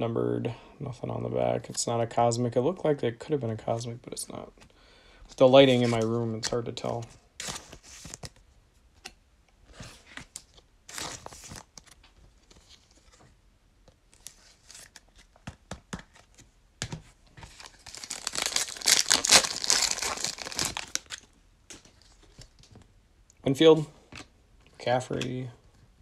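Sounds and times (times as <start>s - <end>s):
foil wrapper crinkling: 17.5s - 21.3s.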